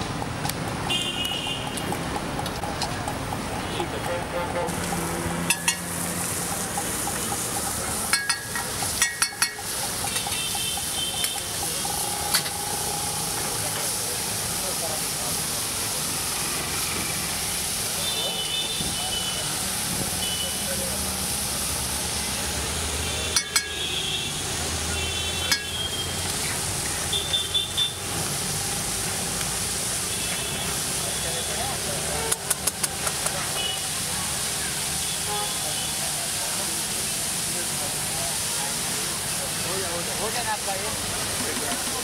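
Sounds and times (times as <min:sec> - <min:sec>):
frying hiss: 0:00.0 - 0:42.0
food sizzling in pan: 0:04.7 - 0:42.0
metal utensil clinking on pan: 0:07.4 - 0:11.4, 0:23.4 - 0:23.8.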